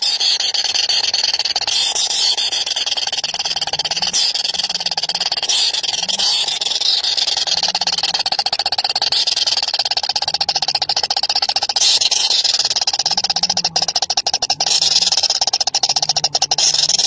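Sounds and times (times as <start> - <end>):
nestlings chittering: 0.0 - 17.0.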